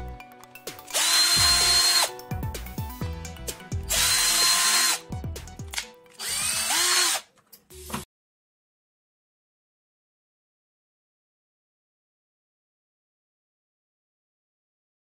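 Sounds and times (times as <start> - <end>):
cordless drill motor whine: 0.9 - 2.1, 3.9 - 5.0, 6.2 - 7.2.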